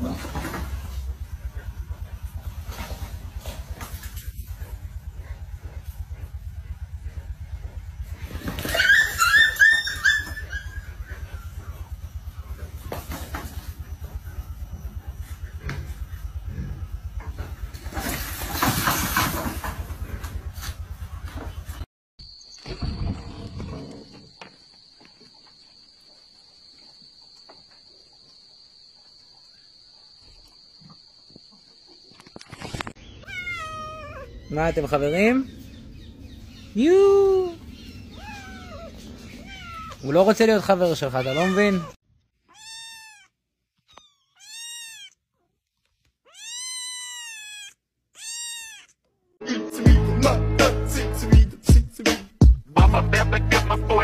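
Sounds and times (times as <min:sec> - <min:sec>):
cricket trilling: 0:22.2 - 0:41.9
kitten meowing: 0:33.2 - 0:35.2, 0:38.1 - 0:40.0, 0:41.2 - 0:43.3, 0:43.9 - 0:45.2, 0:46.2 - 0:49.0
loud music with deep bass: 0:49.8 - 0:54.0.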